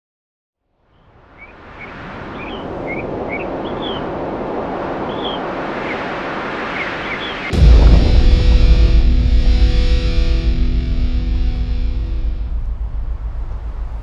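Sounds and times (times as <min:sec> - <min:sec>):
small birds chirping: 0:00.9 - 0:04.1, 0:05.1 - 0:06.1, 0:06.7 - 0:07.5
wind rushing: 0:01.5 - 0:14.0
distorted electric guitar music: 0:07.5 - 0:13.4.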